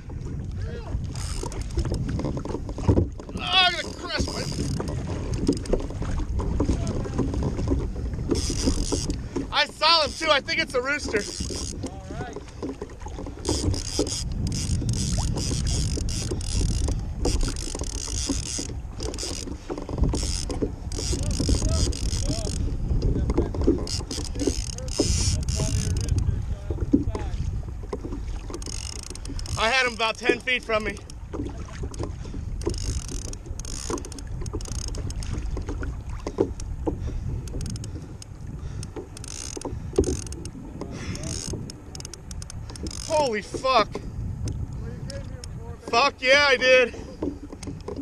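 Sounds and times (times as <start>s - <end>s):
wind rumble: 0.0s - 46.2s
water slapping against kayak hull: 0.0s - 48.0s
fishing reel clicking: 1.1s - 1.8s, 3.8s - 5.8s, 8.3s - 9.2s, 11.0s - 11.9s, 13.3s - 22.7s, 23.8s - 26.3s, 28.5s - 30.2s, 31.9s - 35.4s, 37.4s - 43.2s.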